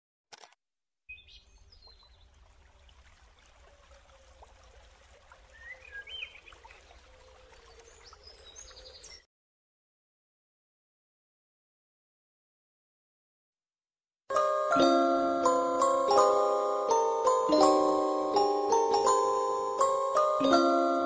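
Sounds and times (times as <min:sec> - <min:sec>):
birds chirping and calling: 0:05.5 - 0:09.2.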